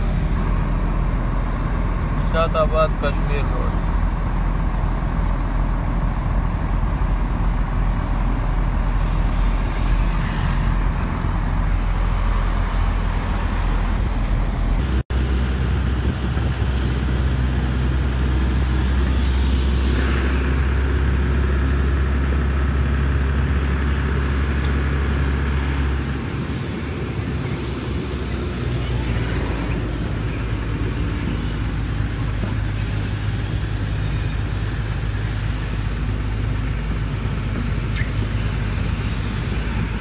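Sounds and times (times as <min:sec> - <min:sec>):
road and tyre noise: 0:00.0 - 0:40.0
truck engine running: 0:00.0 - 0:40.0.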